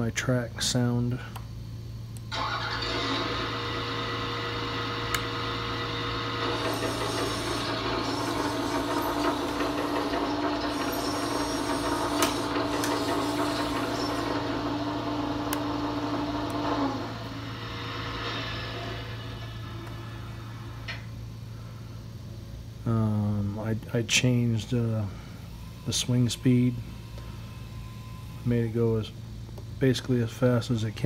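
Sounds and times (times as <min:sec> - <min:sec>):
mechanical track running sound: 0:02.3 - 0:21.0.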